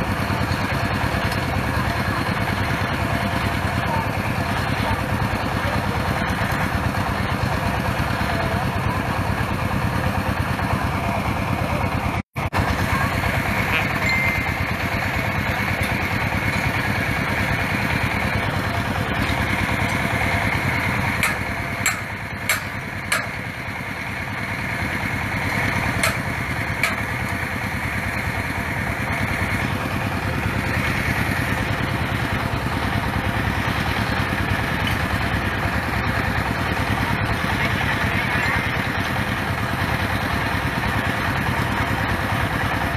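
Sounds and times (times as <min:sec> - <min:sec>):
small engine running steadily: 0:00.0 - 0:42.9
sharp knocks: 0:21.2 - 0:23.4.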